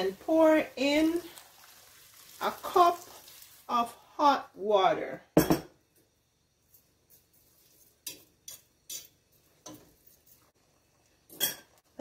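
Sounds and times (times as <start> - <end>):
glass cup set down on counter: 5.4 - 5.8
fork clinking against metal pot: 8.0 - 9.8, 11.3 - 11.7.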